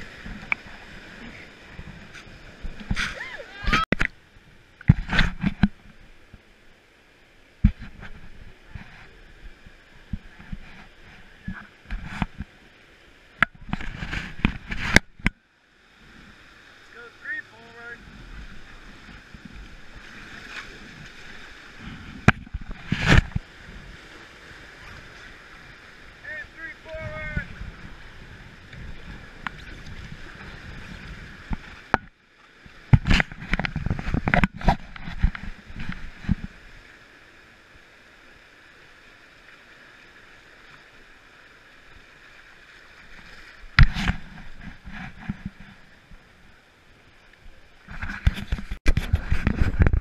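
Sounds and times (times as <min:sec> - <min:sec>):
whitewater rapids rushing: 0:00.0 - 0:03.9, 0:16.4 - 0:31.8
paddles splashing in water: 0:00.0 - 0:50.0
river current rushing: 0:00.0 - 0:50.0.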